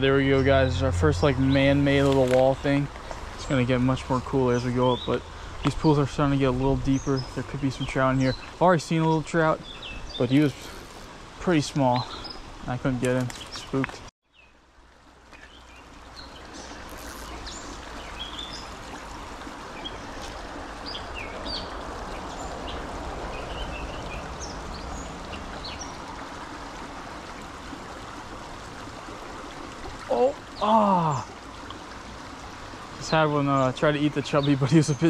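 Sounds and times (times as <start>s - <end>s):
small birds chirping: 0.0s - 14.5s, 15.3s - 19.0s, 19.7s - 26.0s, 33.0s - 35.0s
creek water running over rocks: 0.0s - 35.0s.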